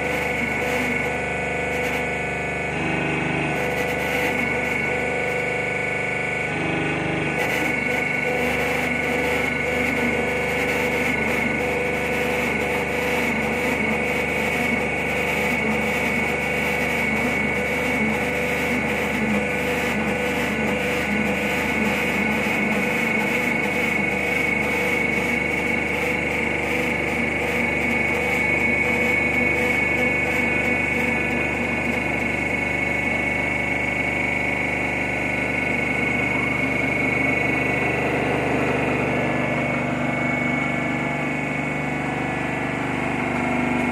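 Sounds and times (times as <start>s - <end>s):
hydraulic press whining drone: 0.0s - 43.9s.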